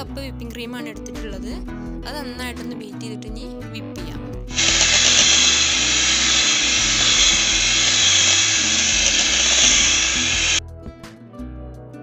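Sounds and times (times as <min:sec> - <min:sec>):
electric hand mixer whirring: 0:04.5 - 0:10.6.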